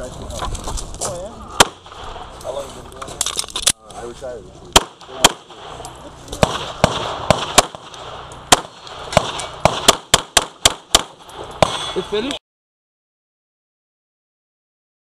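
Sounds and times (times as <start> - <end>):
pistol shots: 1.6 - 2.3, 4.7 - 11.9.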